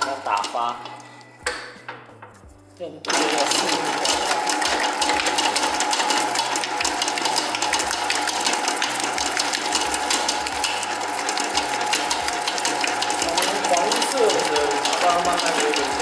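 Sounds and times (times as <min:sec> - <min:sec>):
whisk rattling in bowl: 0:00.0 - 0:00.9, 0:03.1 - 0:16.0
stand mixer whining: 0:03.1 - 0:16.0.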